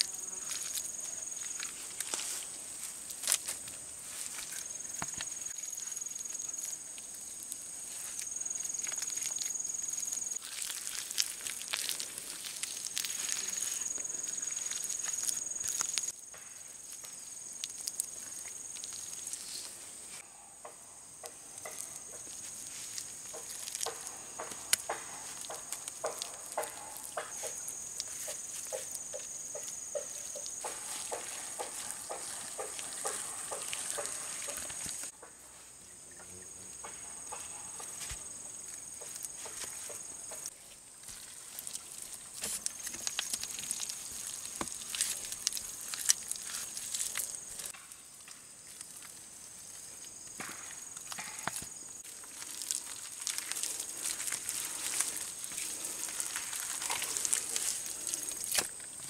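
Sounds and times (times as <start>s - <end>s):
hands patting wet mud: 0.0s - 16.1s, 21.6s - 35.1s, 39.0s - 47.7s, 50.4s - 59.0s
insects droning: 0.0s - 59.0s.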